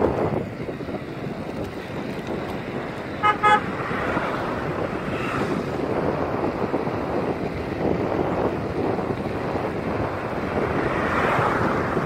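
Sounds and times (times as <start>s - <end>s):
wind rushing across microphone: 0.0s - 12.0s
scooter horn beeps: 3.2s - 3.7s.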